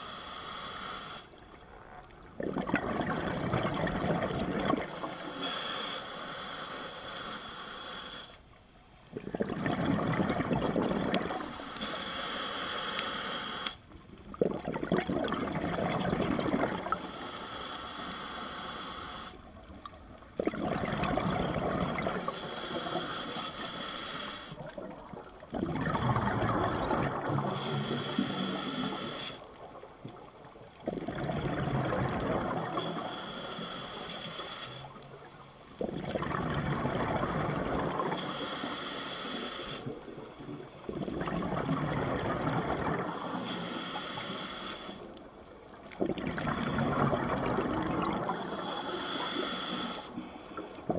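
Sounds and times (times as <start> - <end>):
diver inhaling through regulator: 0.0 - 1.4, 4.8 - 8.4, 10.6 - 13.8, 16.0 - 19.4, 21.3 - 24.6, 26.4 - 29.5, 32.4 - 35.0, 37.8 - 40.0, 43.0 - 45.1, 47.8 - 50.8
exhaled bubbles underwater: 2.2 - 5.2, 9.1 - 11.6, 14.2 - 17.1, 20.3 - 23.0, 24.6 - 33.1, 35.2 - 38.4, 39.8 - 43.5, 45.8 - 50.9.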